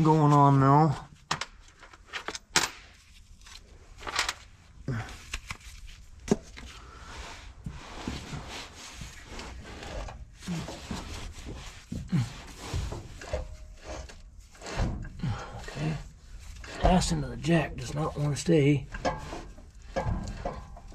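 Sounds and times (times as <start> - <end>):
scraping and rubbing on metal: 7.0 - 20.9.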